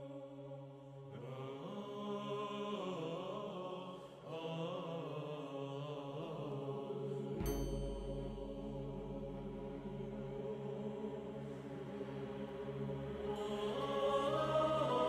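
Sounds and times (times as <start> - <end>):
low drone: 7.3 - 15.0.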